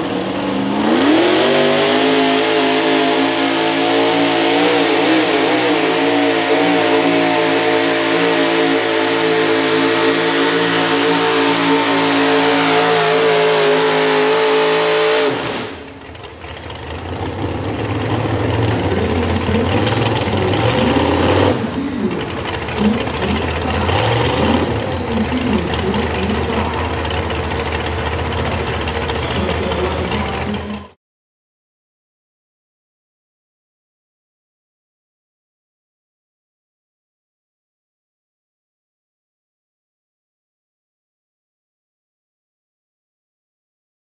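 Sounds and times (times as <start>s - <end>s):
truck engine at high revs: 0.0s - 31.0s.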